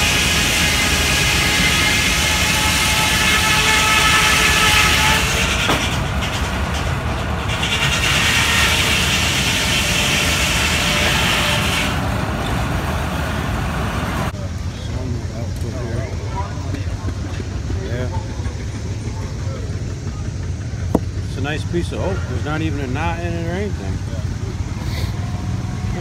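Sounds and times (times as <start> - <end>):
saw cutting through log: 0.0 - 13.0.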